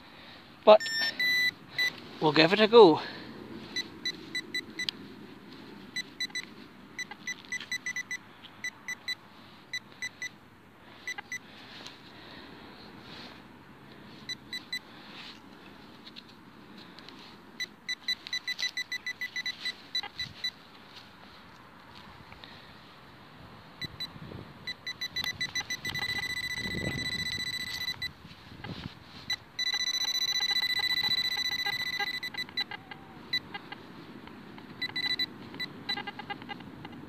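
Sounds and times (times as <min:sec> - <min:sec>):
metal detector short high beeps: 0:00.7 - 0:02.4, 0:06.0 - 0:08.2, 0:17.6 - 0:20.6, 0:24.7 - 0:33.8, 0:34.8 - 0:37.0.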